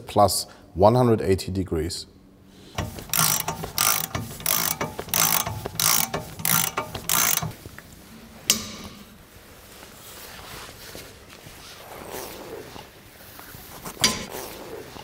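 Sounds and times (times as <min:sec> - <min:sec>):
ratchet wrench clicking: 0:02.8 - 0:07.6
sharp wrench click: 0:02.8 - 0:07.6.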